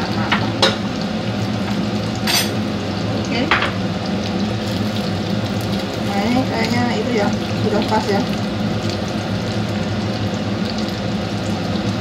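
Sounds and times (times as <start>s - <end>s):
oil sizzling in a pan: 0.0s - 12.0s
oil crackles: 4.1s - 12.0s.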